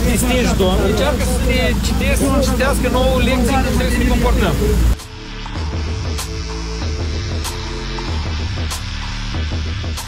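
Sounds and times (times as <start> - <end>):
held chords music: 0.0 - 10.0.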